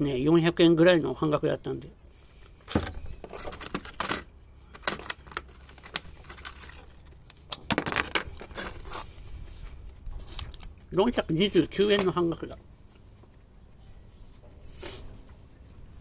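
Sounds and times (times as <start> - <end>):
plastic container clicks and crinkles: 2.7 - 9.0.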